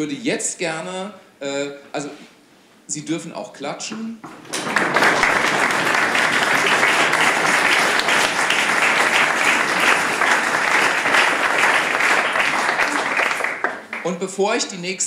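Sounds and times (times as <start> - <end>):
audience applauding: 4.3 - 14.2.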